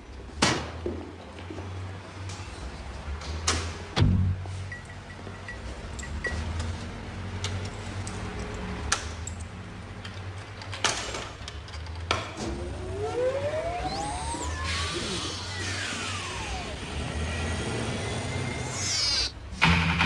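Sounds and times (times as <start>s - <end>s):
jukebox mechanism whine: 12.1s - 19.4s.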